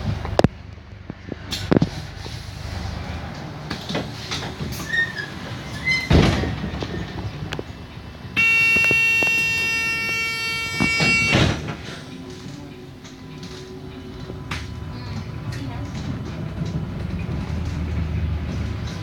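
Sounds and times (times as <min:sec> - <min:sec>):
bus engine hum: 0:00.0 - 0:19.0
bus door warning tone: 0:03.7 - 0:16.9
doors shutting thuds: 0:08.3 - 0:14.8.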